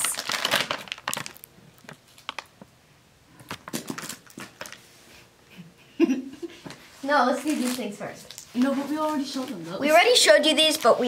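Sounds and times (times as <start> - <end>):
plastic candy packets crinkling: 0.0 - 2.7, 3.4 - 4.8, 7.3 - 11.0.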